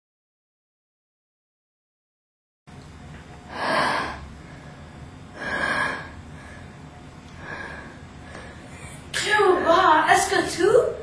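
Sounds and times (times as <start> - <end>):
low background noise: 2.7 - 11.0
person breathing heavily: 3.5 - 9.8.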